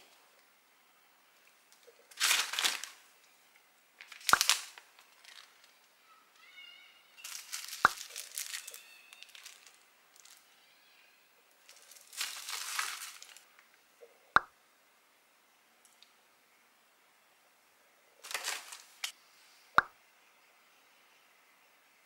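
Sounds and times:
plastic packaging crinkling: 2.1 - 3.0, 4.0 - 5.7, 7.2 - 10.4, 11.6 - 13.5, 18.2 - 19.1.

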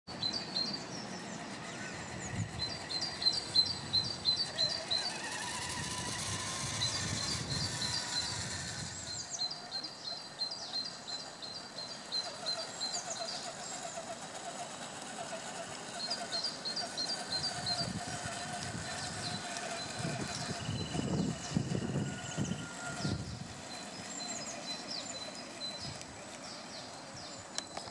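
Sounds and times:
songbird chirping: 15.7 - 27.9.

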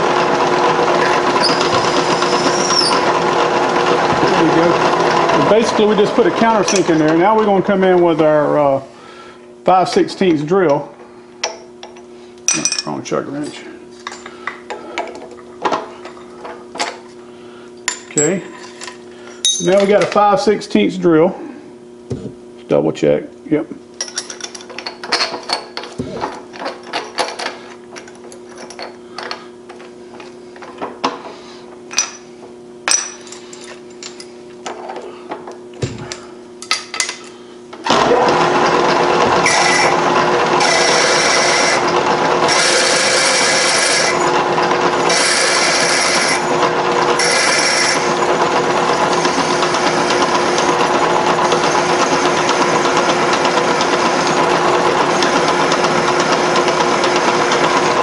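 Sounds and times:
milling machine spindle running: 0.0 - 8.8, 37.8 - 58.0
drill cutting metal: 0.9 - 7.0, 37.8 - 57.8.

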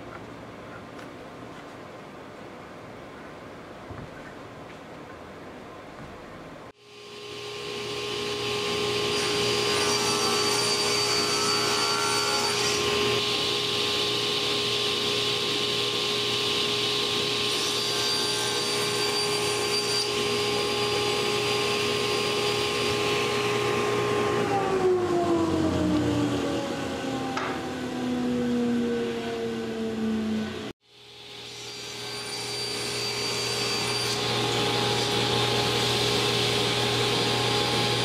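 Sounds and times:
table saw whining: 6.9 - 38.0.

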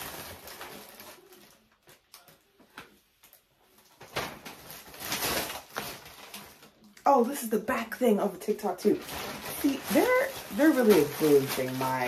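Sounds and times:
plastic packaging crinkling: 0.0 - 2.6, 3.2 - 12.0.

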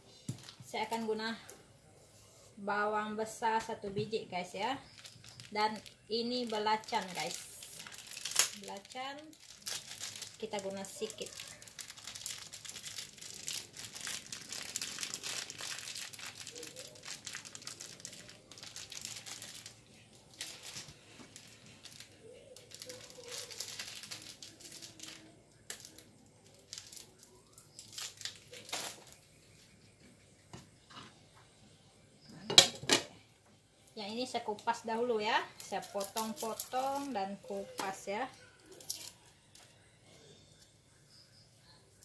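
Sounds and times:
plastic wrapper crinkling: 4.5 - 29.7, 35.6 - 39.3.

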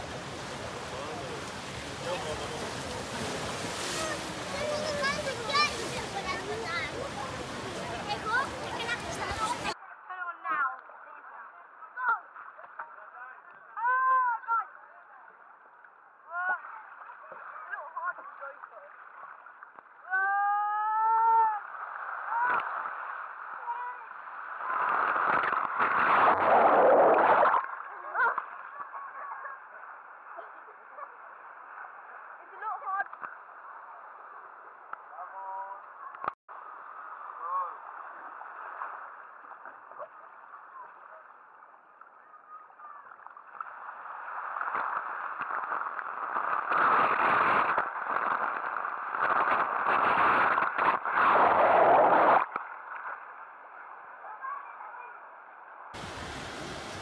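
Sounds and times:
pool water sloshing: 0.0 - 9.8, 21.2 - 55.1, 55.9 - 57.0
water splashing loudly: 0.0 - 9.8.

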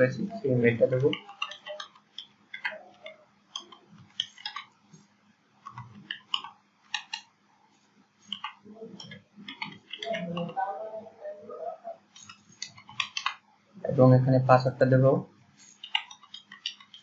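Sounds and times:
keyboard keystrokes clicking: 0.9 - 4.7, 5.6 - 7.3, 8.2 - 10.6, 12.1 - 13.4, 15.7 - 17.0.

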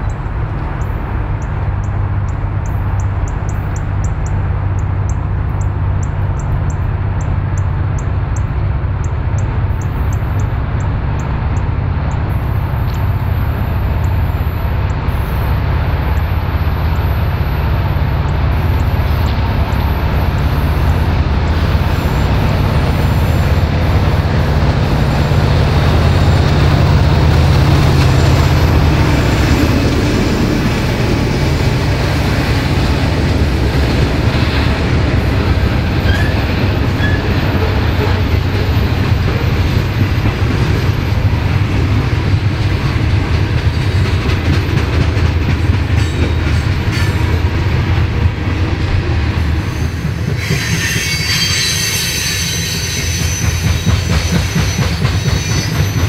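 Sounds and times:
locomotive engine drone: 0.0 - 56.0
train cars rolling on rails: 0.0 - 56.0.

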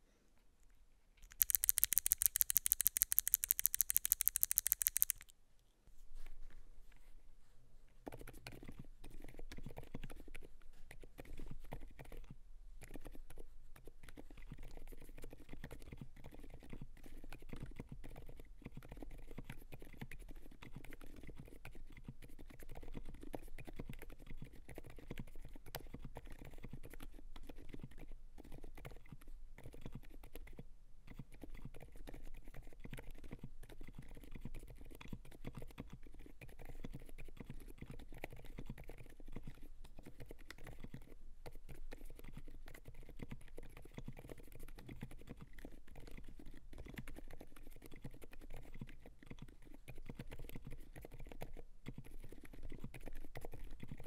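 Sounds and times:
fast typing on mechanical keyboard: 1.2 - 5.3, 14.7 - 41.1, 41.7 - 54.0.

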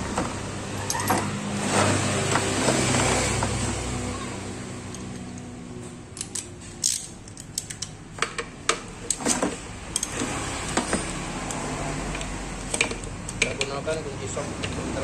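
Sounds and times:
ratchet wrench clicking on metal: 6.2 - 7.9, 9.9 - 10.2.

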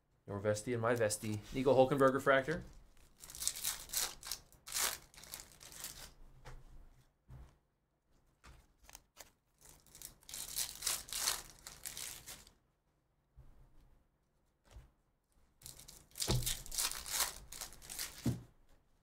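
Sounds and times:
foil wrappers tearing and crinkling: 2.9 - 6.2, 9.6 - 12.5, 15.6 - 18.3.

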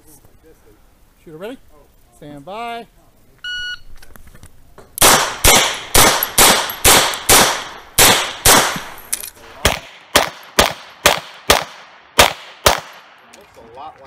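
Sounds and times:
pistol shots with echo: 5.0 - 9.0, 9.6 - 13.2.

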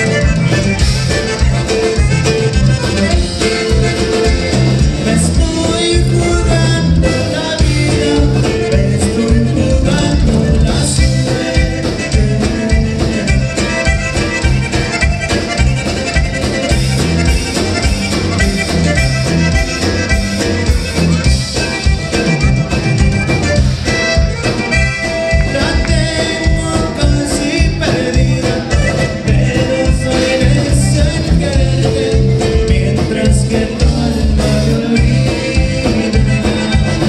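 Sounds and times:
band playing upbeat tune: 0.0 - 37.0
button accordion: 0.0 - 37.0.

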